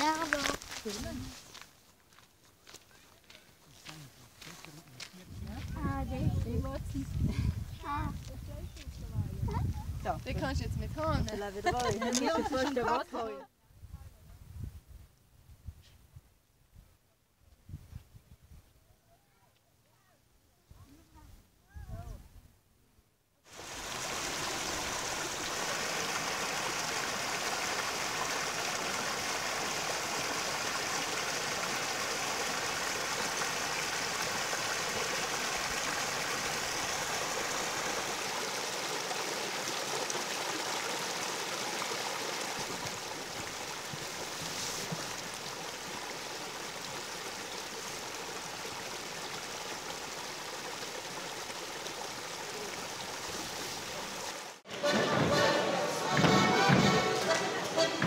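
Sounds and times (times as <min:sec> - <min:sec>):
brook water rushing: 0:00.0 - 0:01.8, 0:05.5 - 0:13.4, 0:23.5 - 0:58.0.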